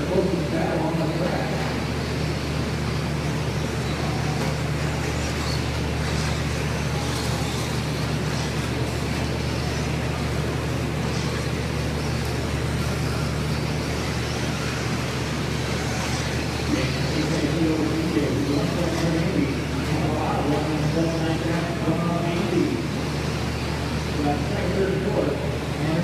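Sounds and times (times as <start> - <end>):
radio-controlled trucks running: 0.0 - 26.0
steady low hum: 0.0 - 26.0.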